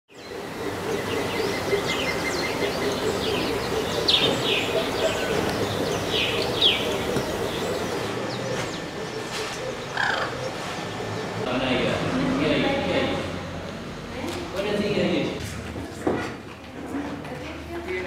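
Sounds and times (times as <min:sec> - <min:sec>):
birds chirping and whistling: 0:00.1 - 0:11.5
low background hum: 0:00.2 - 0:15.9.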